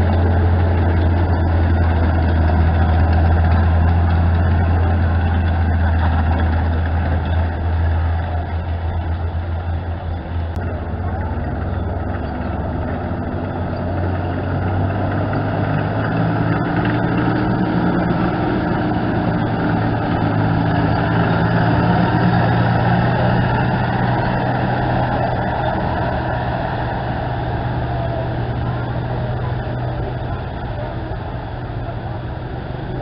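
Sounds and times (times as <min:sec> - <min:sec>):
military vehicle engines driving past: 0:00.0 - 0:33.0.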